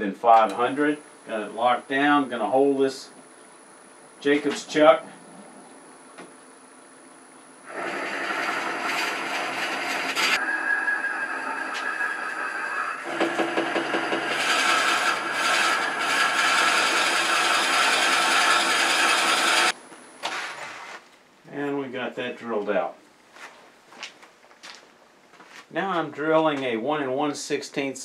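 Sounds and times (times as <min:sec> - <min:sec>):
drill bit grinding into wood: 0:07.7 - 0:19.7.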